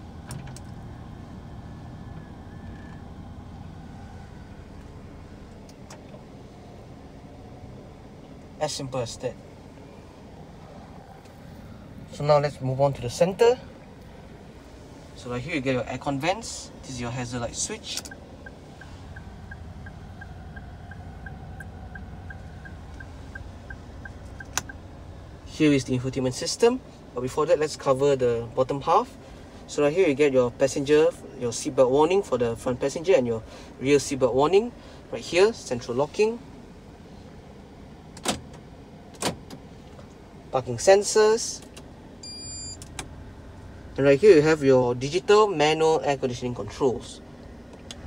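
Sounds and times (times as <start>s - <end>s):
side mirror motors whirring: 0.0s - 8.6s, 9.2s - 15.2s, 16.7s - 25.5s
low hum in car cabin: 0.0s - 48.0s
hazard lights ticking: 18.0s - 24.8s.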